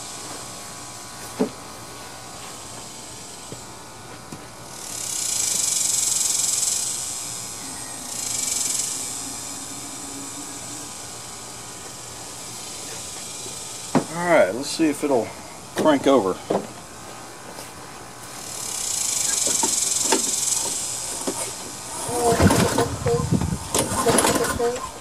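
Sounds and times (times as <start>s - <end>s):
aerosol spray hissing: 4.8s - 14.4s.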